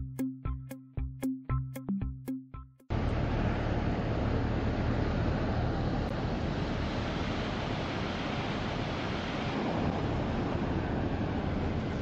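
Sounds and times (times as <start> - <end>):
waves breaking on beach: 2.9 - 12.0
wind rumbling on microphone: 2.9 - 12.0.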